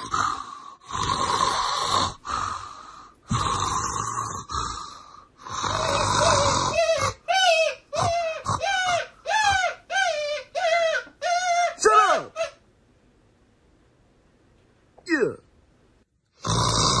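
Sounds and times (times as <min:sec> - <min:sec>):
loud snoring: 0:00.0 - 0:02.5, 0:03.3 - 0:07.2, 0:16.4 - 0:17.0.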